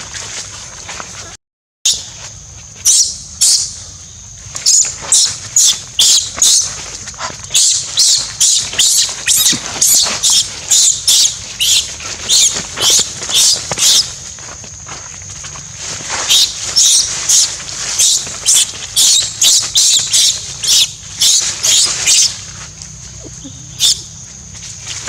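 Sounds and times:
infant monkey screaming: 4.7 - 14.0, 23.1 - 24.2.

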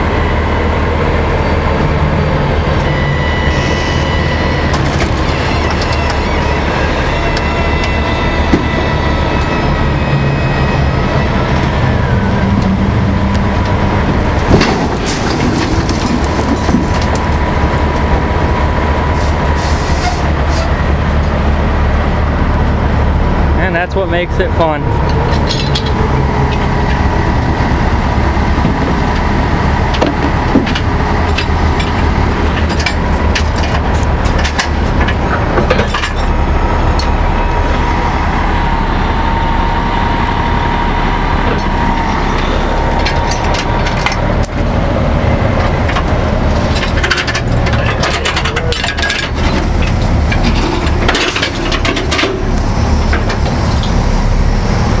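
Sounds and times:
diesel truck engine running: 0.0 - 55.0
steady whine: 0.0 - 55.0
sharp clicks and rattles: 45.6 - 54.0.

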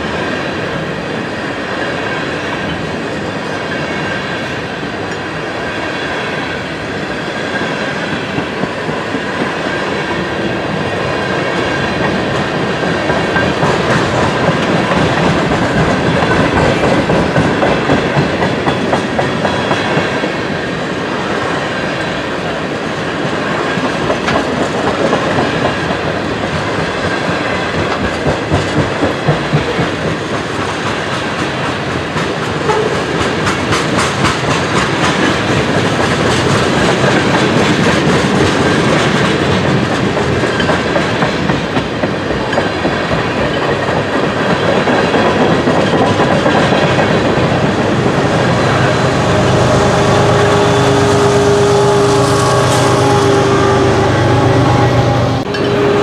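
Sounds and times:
train wheels rumbling on rail: 0.0 - 56.0
clickety-clack over rail joints: 7.5 - 48.9.

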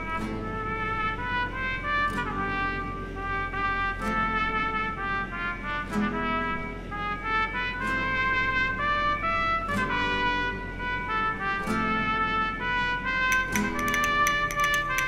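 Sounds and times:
trumpet-led brass melody: 0.0 - 15.0.

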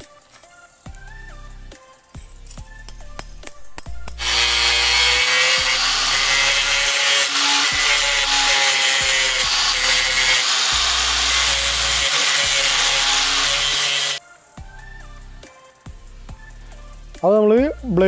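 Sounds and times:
angle grinder grinding metal: 4.2 - 14.2.

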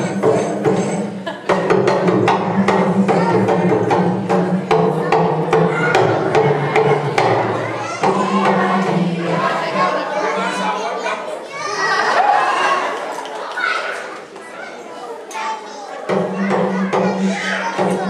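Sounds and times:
hand drums: 0.0 - 10.6, 16.1 - 18.0
wooden percussion strikes: 0.0 - 10.8, 16.0 - 18.0.

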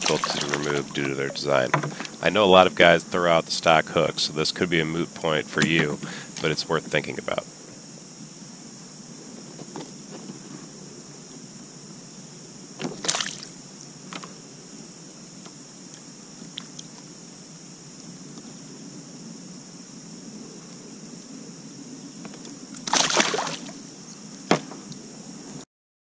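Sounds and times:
fish splashing in water: 0.0 - 2.2, 13.0 - 13.6, 22.8 - 23.8.

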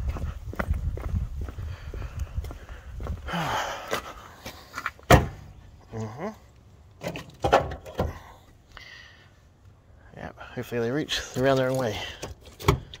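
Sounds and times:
footsteps: 0.0 - 5.4.

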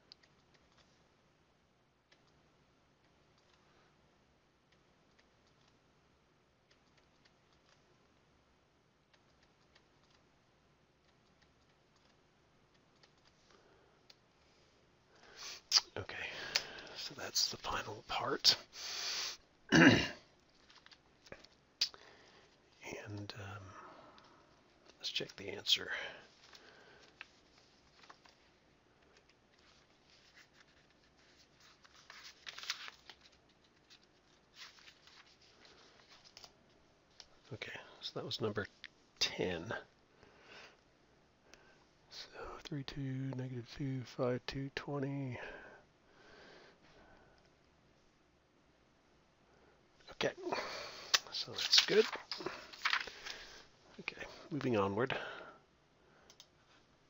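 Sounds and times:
rustling and scratching handling: 20.3 - 21.7, 26.2 - 38.0, 50.4 - 54.8.

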